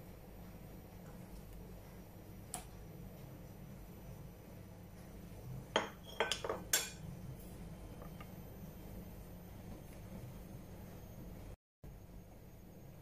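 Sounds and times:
spoon clinking against pot: 0:05.8 - 0:07.0.

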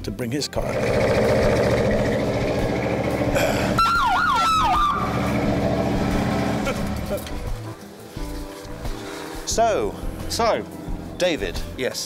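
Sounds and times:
car engine idling: 0:00.7 - 0:07.8, 0:08.7 - 0:11.8
siren yelping wail: 0:03.8 - 0:05.3.

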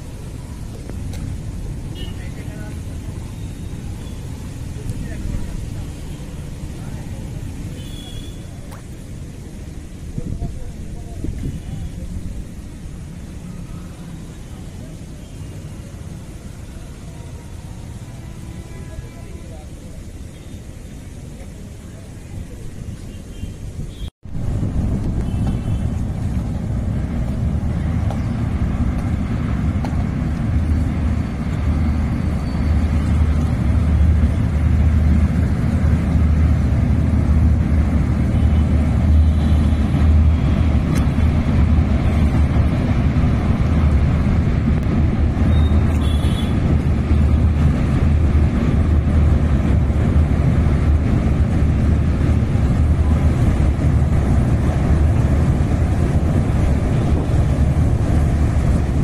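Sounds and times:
wind buffeting microphone: 0:08.8 - 0:12.9, 0:23.7 - 0:59.0.

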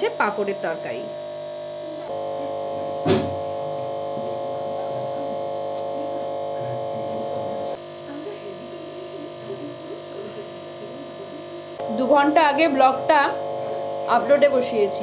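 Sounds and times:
steady electrical hum: 0:00.0 - 0:15.0
sharp knock: 0:03.0 - 0:03.4.

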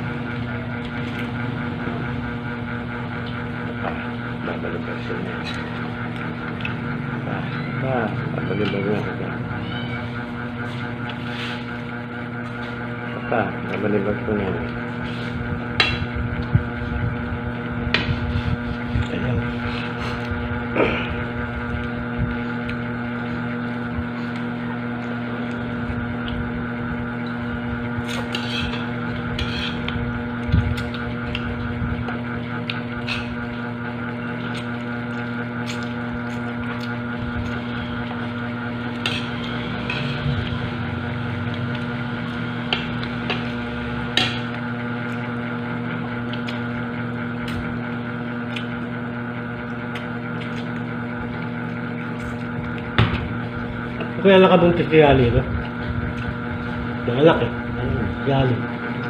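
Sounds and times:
electrical motor hum: 0:00.0 - 0:59.0
quiet eating sounds: 0:02.8 - 0:15.5, 0:18.0 - 0:54.6.

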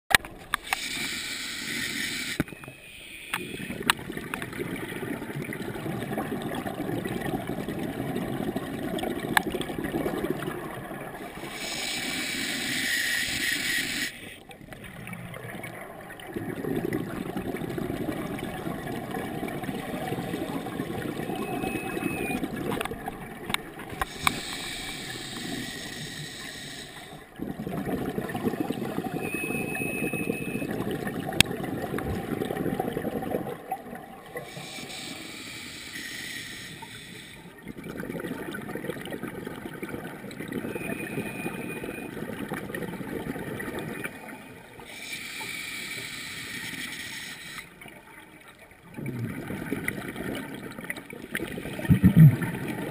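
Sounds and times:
underwater bubbles gurgling: 0:00.1 - 0:52.9
regulator air hiss: 0:00.7 - 0:03.3, 0:11.4 - 0:14.4, 0:24.1 - 0:27.2, 0:34.5 - 0:37.4, 0:44.9 - 0:47.7.

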